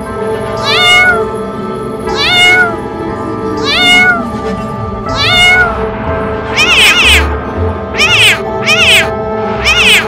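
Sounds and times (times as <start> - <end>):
background music: 0.0 - 10.0
cat meowing: 0.6 - 1.3, 2.1 - 2.8, 3.6 - 4.3, 5.1 - 5.9, 6.5 - 10.0.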